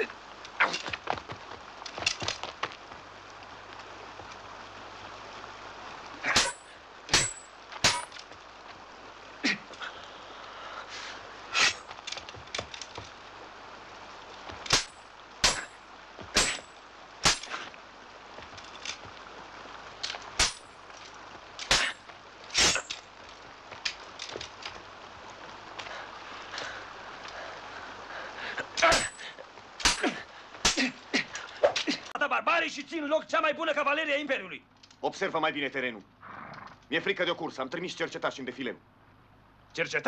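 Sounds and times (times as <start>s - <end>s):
river rushing: 0.0s - 32.1s
swords clashing: 6.2s - 8.2s, 11.6s - 11.8s, 14.7s - 15.7s, 16.4s - 17.6s, 20.4s - 20.6s, 21.6s - 22.0s, 22.6s - 23.0s, 28.8s - 29.2s, 29.8s - 31.0s.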